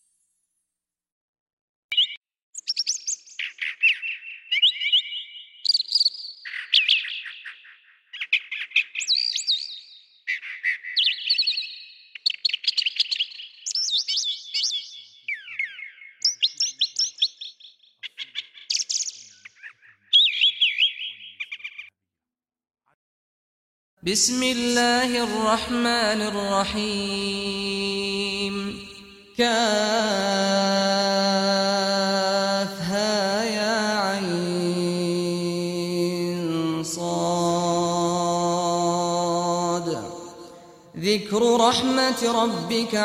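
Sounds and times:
songbird trilling and whistling: 1.9s - 21.9s.

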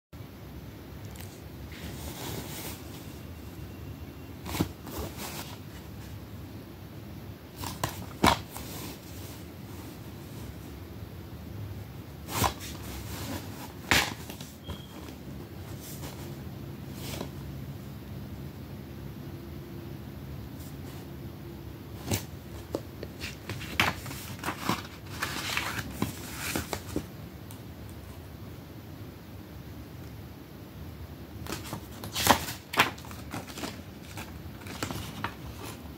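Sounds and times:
low background noise: 0.2s - 35.9s
paper insert rustling: 1.1s - 3.3s, 4.4s - 6.2s, 7.6s - 10.6s, 12.2s - 17.4s, 22.0s - 27.1s, 31.4s - 35.9s.

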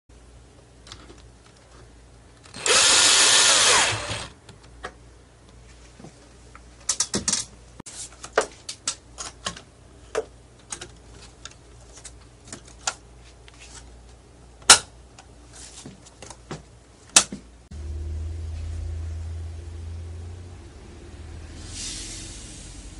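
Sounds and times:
power drill running: 2.5s - 4.4s.

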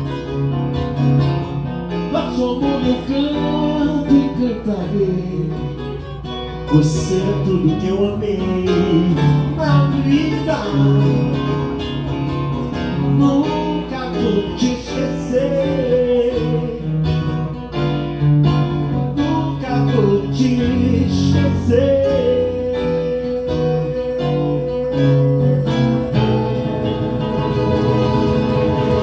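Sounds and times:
acoustic guitar strummed and picked: 0.0s - 29.0s
man's wordless singing: 2.1s - 5.8s, 6.7s - 11.6s, 13.0s - 17.0s, 19.1s - 26.6s.

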